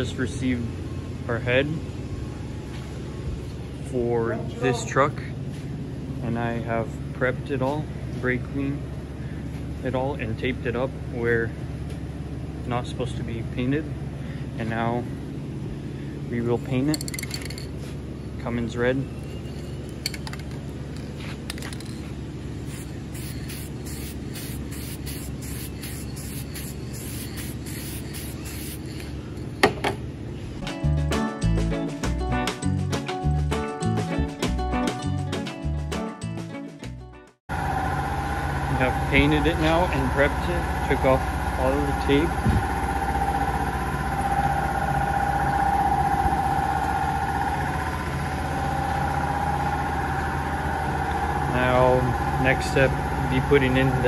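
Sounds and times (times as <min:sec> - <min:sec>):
mechanical drone with whine: 0:09.8 - 0:30.6, 0:37.5 - 0:54.0
aerosol can spraying: 0:22.7 - 0:29.2.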